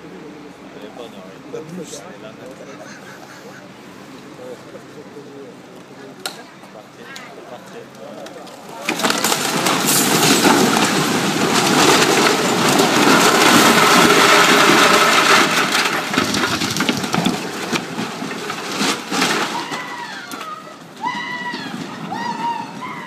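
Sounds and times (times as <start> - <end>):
brick house collapsing: 8.2 - 23.0
sharp cracks: 8.7 - 20.5.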